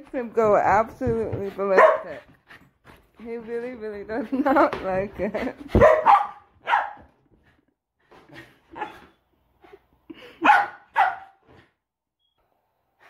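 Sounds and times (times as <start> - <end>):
dog barking: 1.8 - 2.2, 5.7 - 7.1, 10.4 - 11.4.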